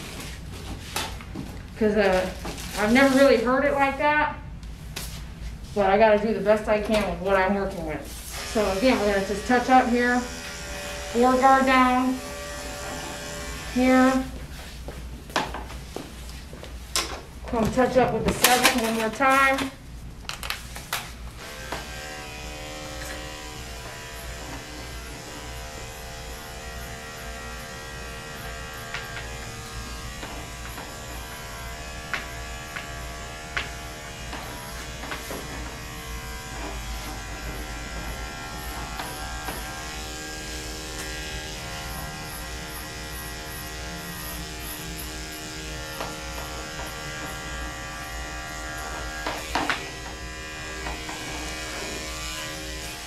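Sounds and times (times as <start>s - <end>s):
dog clipper buzzing: 7.1s - 14.5s, 21.0s - 53.0s.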